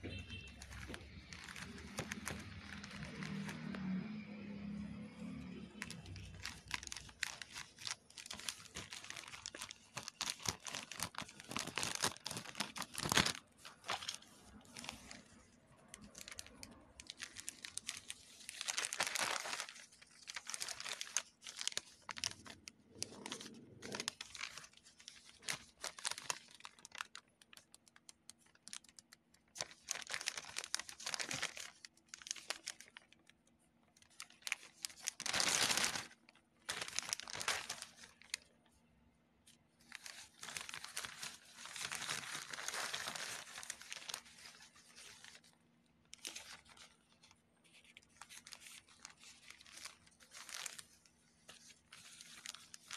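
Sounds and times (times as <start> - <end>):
plastic crinkling: 0.0 - 52.9
plastic mailer being torn open: 0.2 - 33.2, 34.0 - 38.5, 39.8 - 45.5.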